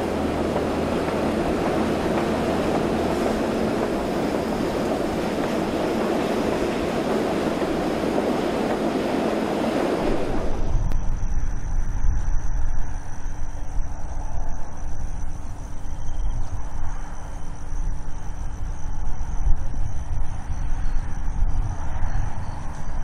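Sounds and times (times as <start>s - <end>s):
diesel train rumbling and rattling: 0.0s - 12.0s
faint high whine: 0.0s - 23.0s
wind on microphone: 0.0s - 23.0s.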